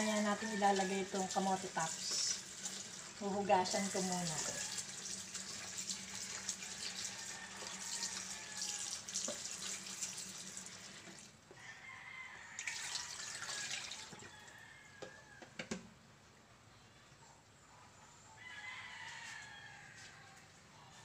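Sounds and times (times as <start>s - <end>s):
water splashing over leaves: 0.0s - 7.2s
tap running into plastic basin: 9.1s - 10.2s.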